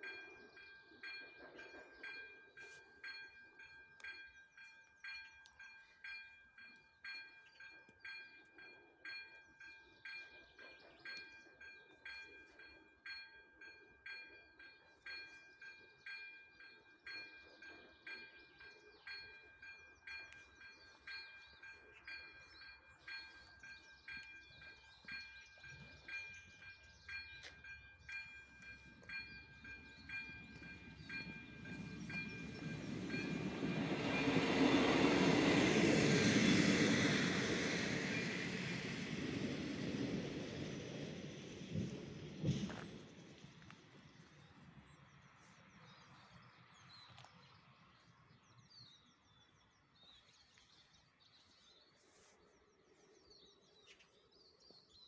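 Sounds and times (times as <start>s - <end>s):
level crossing warning bell ringing: 0.0s - 36.8s
railbus rumble: 0.0s - 48.0s.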